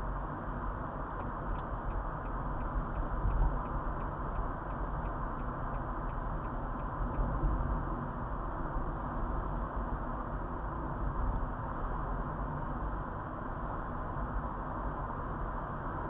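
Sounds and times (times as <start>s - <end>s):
car road and engine noise: 0.0s - 16.0s
light regular ticking: 1.2s - 7.2s.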